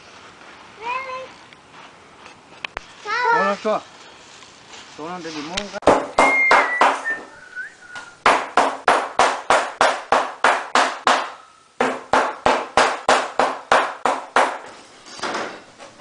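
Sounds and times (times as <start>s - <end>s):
knife chopping on wooden board: 5.8s - 7.0s, 8.2s - 14.6s.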